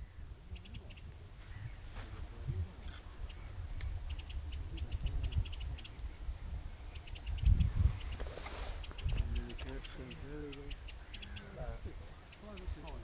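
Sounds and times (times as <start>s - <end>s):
wind rumble on microphone: 0.0s - 13.0s
ducks whistling calls: 3.0s - 6.1s, 6.8s - 13.0s.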